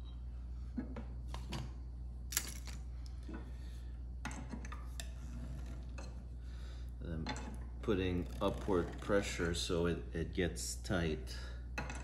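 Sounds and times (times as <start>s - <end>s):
steady low hum: 0.0s - 12.0s
metallic scrapes of wire: 7.4s - 9.6s.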